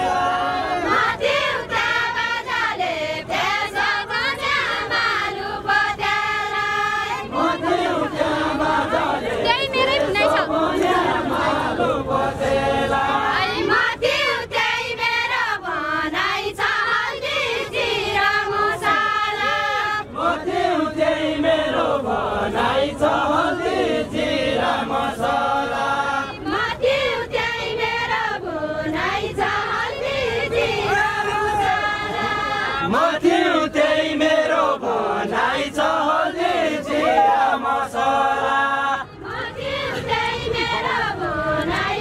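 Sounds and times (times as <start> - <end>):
women singing folk verse: 0.0 - 42.0.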